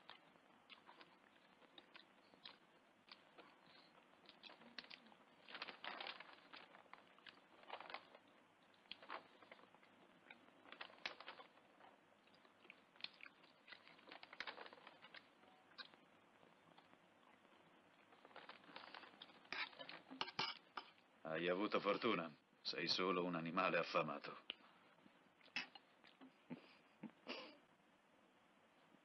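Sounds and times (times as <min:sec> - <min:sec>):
chewing: 0:00.0 - 0:21.0.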